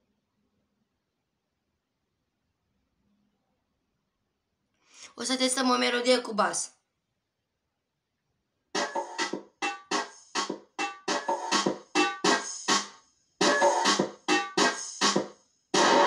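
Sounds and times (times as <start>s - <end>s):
chopped keyboard chords: 8.8s - 16.0s.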